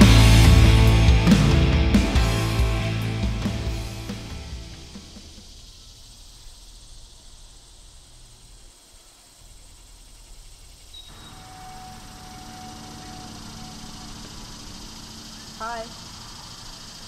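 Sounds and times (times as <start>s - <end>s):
thin hiss: 3.4s - 17.0s
faint steady tone: 5.4s - 17.0s.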